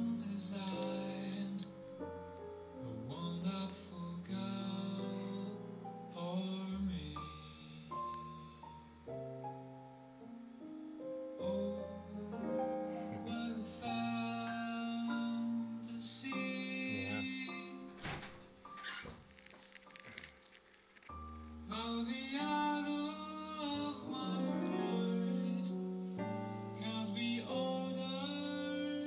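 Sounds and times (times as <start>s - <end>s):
person singing: 0.0s - 8.8s, 11.4s - 18.1s, 21.7s - 29.0s
slow song with keyboard: 0.0s - 29.0s.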